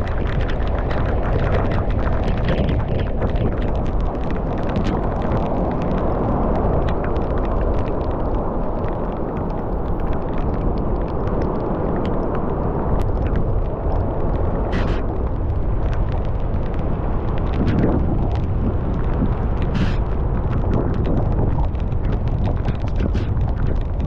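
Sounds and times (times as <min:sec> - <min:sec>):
strong wind on microphone: 0:00.0 - 0:24.0.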